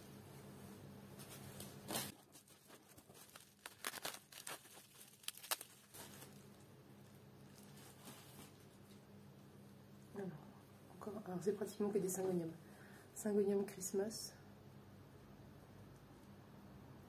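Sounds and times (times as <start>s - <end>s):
bubble wrap crinkling: 1.2s - 9.1s.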